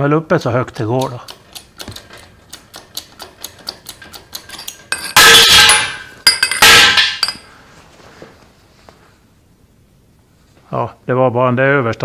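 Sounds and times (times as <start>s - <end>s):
jack pump handle clicks: 1.0s - 4.8s
steel rod clattering on concrete: 3.3s - 7.5s.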